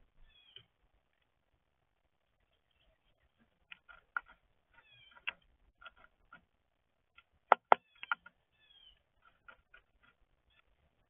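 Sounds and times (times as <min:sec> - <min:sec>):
songbirds chipping and calling: 0:00.0 - 0:01.2, 0:02.2 - 0:06.5, 0:07.1 - 0:11.0
sharp taps: 0:07.2 - 0:08.3.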